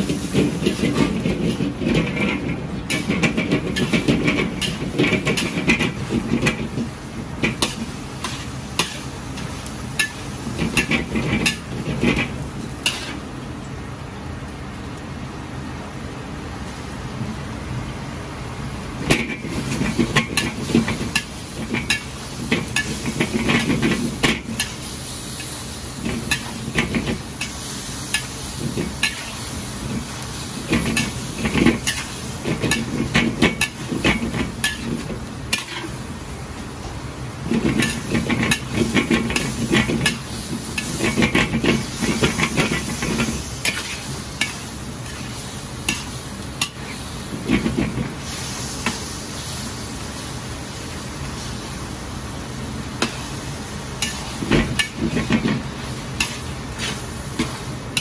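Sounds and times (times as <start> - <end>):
meat sizzling in a wok: 0.0 - 58.0
metal ladle scraping a wok: 12.9 - 13.2, 30.7 - 36.0, 37.5 - 47.8, 54.0 - 58.0.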